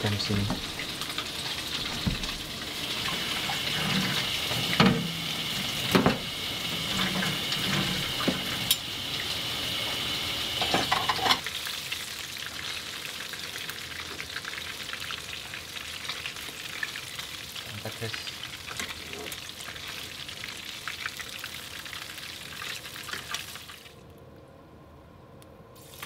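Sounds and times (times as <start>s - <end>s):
fish sizzling in a pan: 0.3s - 23.6s
tap running into steel sink: 4.0s - 5.2s, 5.8s - 6.3s.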